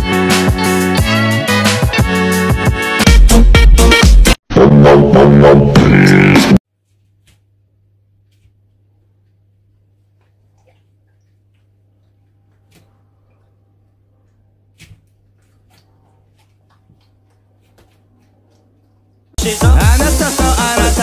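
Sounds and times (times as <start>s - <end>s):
loud electronic dance music: 0.0s - 6.6s, 19.4s - 21.0s.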